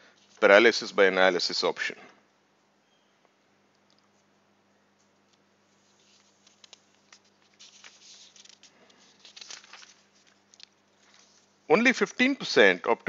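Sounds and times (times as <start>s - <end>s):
soft rustling: 4.1s - 11.6s.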